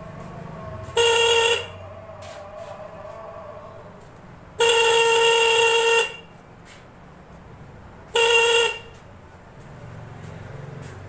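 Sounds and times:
electric horn blasts: 0.8s - 1.8s, 4.6s - 6.4s, 8.1s - 9.0s.

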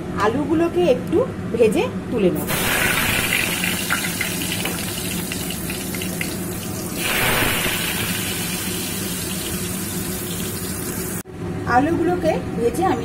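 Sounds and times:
potatoes frying in oil: 2.4s - 11.2s.

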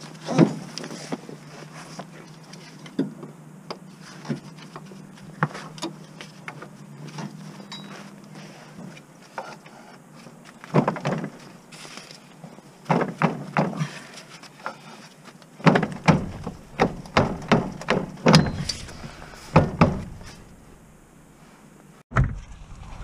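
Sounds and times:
tools knocking and clanking on car: 12.8s - 13.9s, 15.6s - 18.8s, 19.5s - 20.4s.

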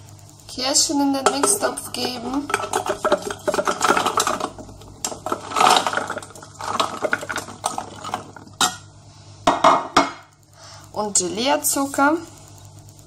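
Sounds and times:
frozen cherries clattering into steel bowl: 1.2s - 8.9s.

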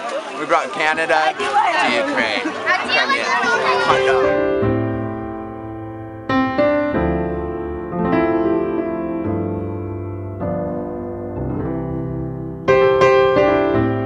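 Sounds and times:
slow piano piece: 3.5s - 14.0s.

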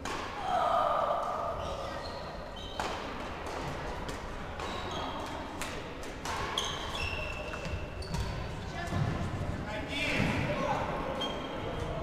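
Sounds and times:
rackets striking shuttlecock: 0.0s - 0.4s
sneakers squeaking on court floor: 1.6s - 3.1s, 4.6s - 5.5s, 6.3s - 9.2s, 11.1s - 11.9s.

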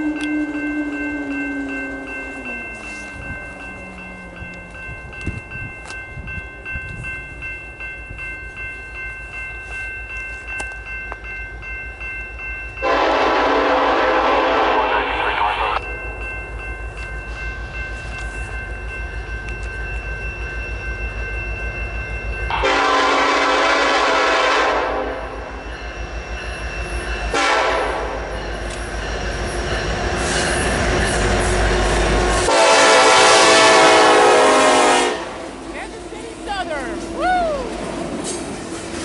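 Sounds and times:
locomotive engines rumbling: 0.0s - 8.6s, 12.6s - 39.0s
crossing bell ringing: 0.0s - 39.0s
locomotive horn blasts: 12.8s - 15.7s, 22.5s - 25.4s, 27.3s - 28.2s, 32.4s - 35.5s.

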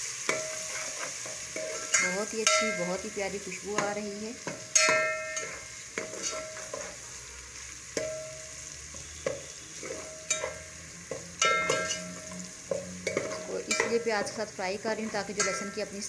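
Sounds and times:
oil sizzling: 0.0s - 16.0s
metal spoon knocking on pot: 1.6s - 3.0s, 3.8s - 6.1s, 9.3s - 14.4s, 15.2s - 16.0s.

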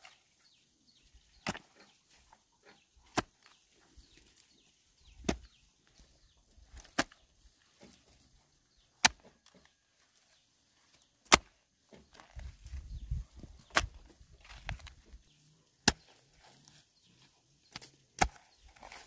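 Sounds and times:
hoe chopping into soil: 1.4s - 1.9s, 3.1s - 3.5s, 5.2s - 5.5s, 9.0s - 9.6s, 11.2s - 12.4s, 13.5s - 14.9s, 15.8s - 16.2s, 17.7s - 19.0s.

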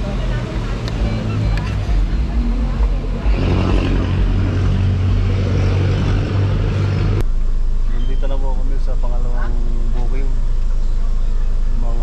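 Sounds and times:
engine rumble inside van: 0.0s - 3.4s
vehicle engine humming: 0.0s - 12.0s.

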